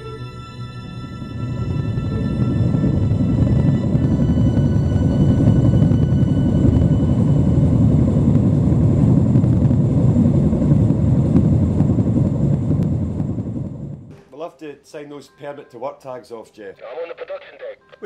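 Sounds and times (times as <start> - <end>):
deep rumbling roar: 0.9 - 14.1.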